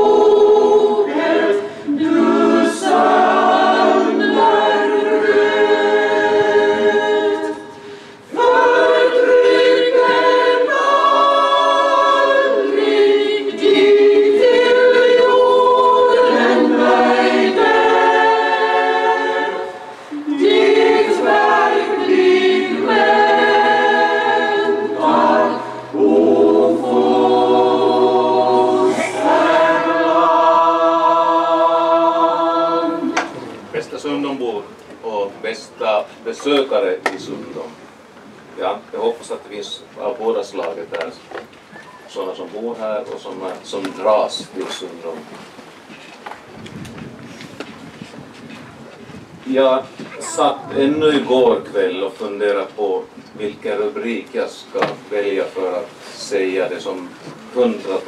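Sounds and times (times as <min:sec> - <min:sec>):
mixed choir singing unaccompanied: 0:00.0 - 0:34.0.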